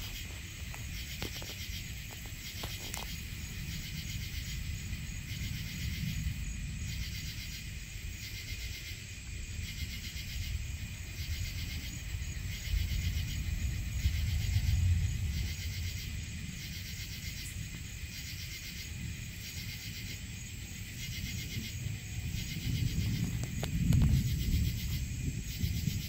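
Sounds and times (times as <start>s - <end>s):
insects trilling: 0.0s - 26.0s
low rumble: 10.4s - 18.2s.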